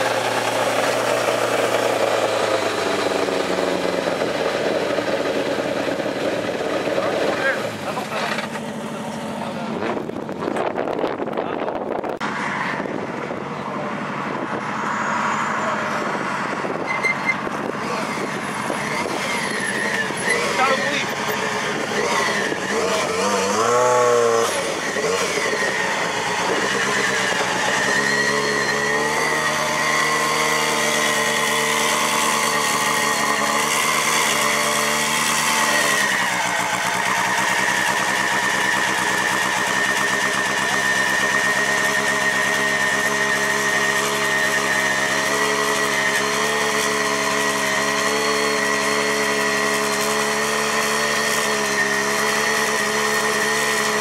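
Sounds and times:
rally car engine revving and idling: 0.0 - 54.0.

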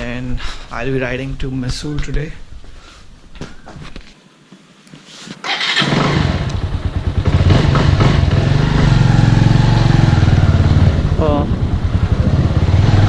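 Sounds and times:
motorcycle engine running: 5.7 - 13.0.

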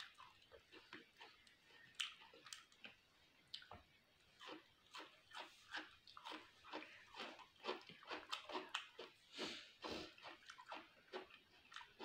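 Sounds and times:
person chewing cucumber: 0.0 - 12.0.

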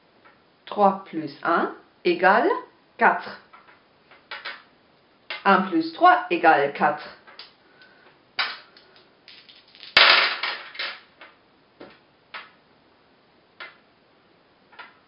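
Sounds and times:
dice clicking as set down: 8.4 - 11.4
plastic dice clattering on paper: 8.4 - 11.4.

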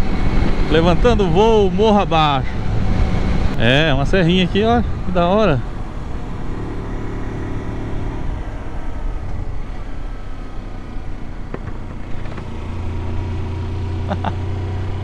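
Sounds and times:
wind rush on microphone: 0.0 - 6.6
motorcycle engine hum: 0.0 - 15.0.

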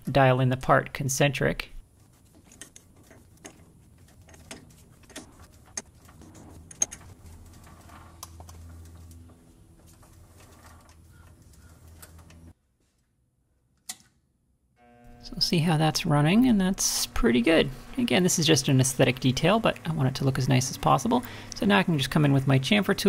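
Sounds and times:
low steady hum: 14.8 - 23.0.

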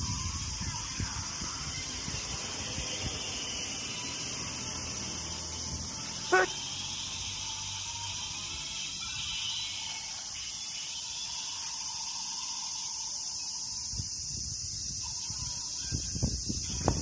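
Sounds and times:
insects chorus: 0.0 - 17.0.

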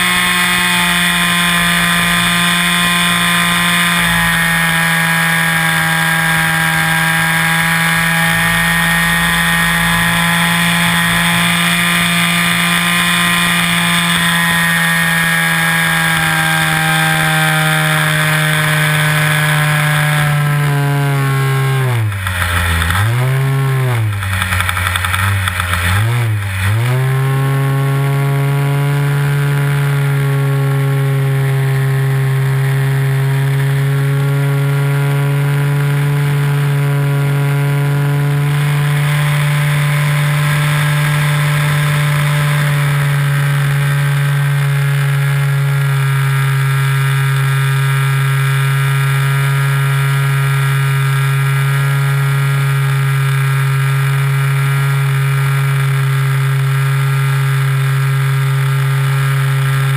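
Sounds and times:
model plane engine running: 0.0 - 59.9.

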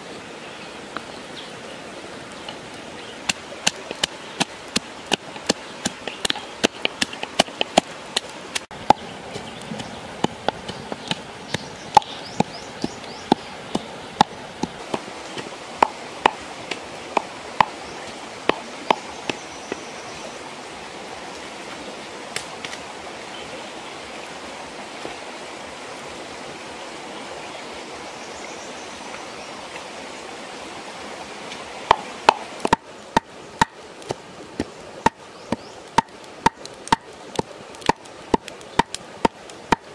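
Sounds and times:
stream rushing: 0.0 - 39.9.

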